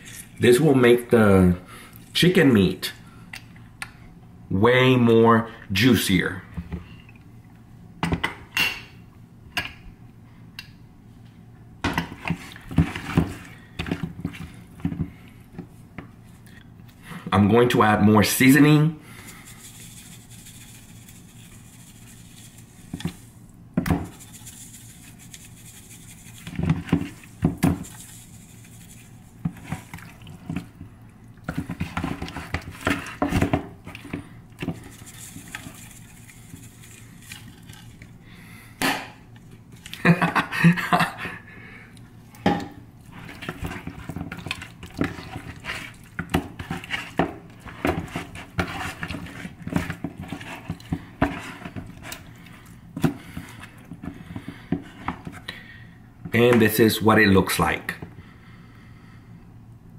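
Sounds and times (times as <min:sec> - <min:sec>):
seasoning shaken from shaker: 0:19.2 - 0:30.1, 0:34.7 - 0:38.1
knocks and rubbing in plastic bowl: 0:23.8 - 0:30.8, 0:31.5 - 0:37.4, 0:43.2 - 0:52.2.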